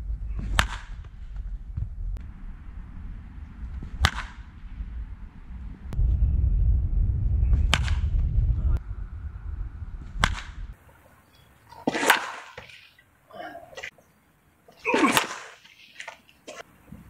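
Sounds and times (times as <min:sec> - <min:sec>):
wind rumble on microphone: 0:00.0 - 0:10.8
baseball bat cracking ball: 0:00.4 - 0:01.2, 0:03.7 - 0:04.6, 0:10.2 - 0:10.6, 0:11.8 - 0:12.8.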